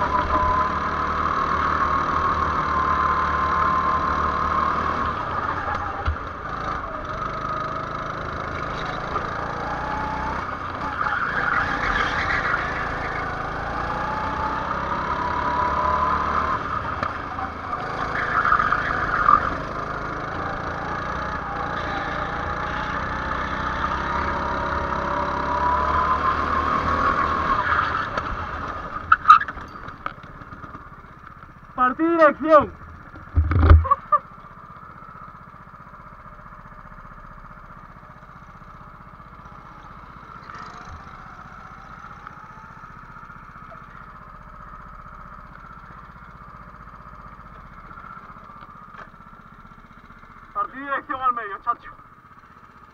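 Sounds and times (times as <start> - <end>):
go-kart engine running: 0.0 - 52.9.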